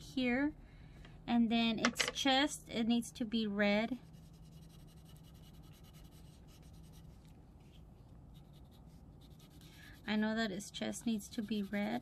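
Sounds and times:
crayon scratching on paper: 4.0 - 7.2, 8.3 - 12.0.

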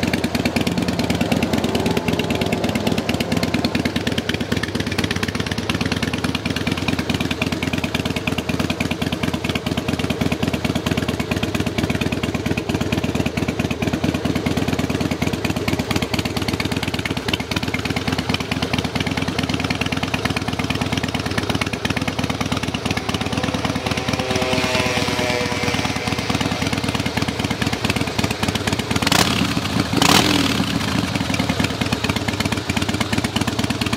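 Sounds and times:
motorcycle engine idling: 0.0 - 33.9.

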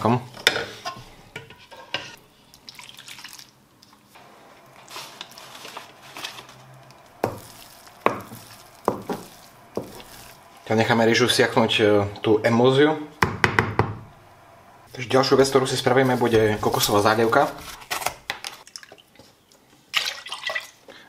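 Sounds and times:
spatula stirring sticky rice: 4.8 - 10.8
spatula knocking on pan: 8.0 - 10.1, 13.2 - 14.1.

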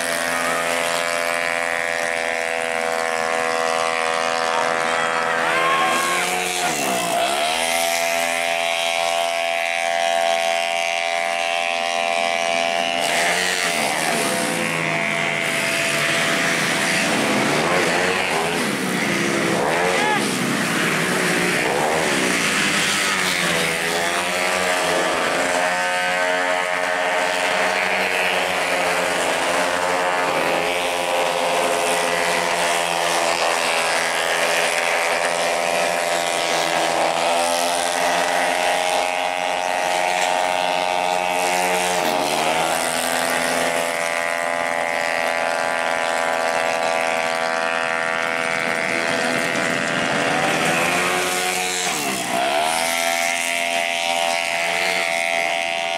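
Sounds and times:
scooter engines racing past: 0.0 - 55.9.

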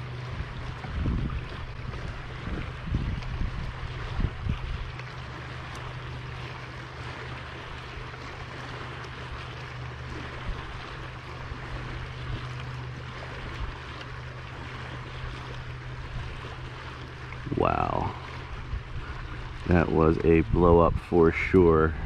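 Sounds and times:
wind on the microphone: 0.0 - 5.0, 17.4 - 22.0
constant low hum: 0.0 - 22.0
water rushing around a kayak: 0.0 - 22.0.

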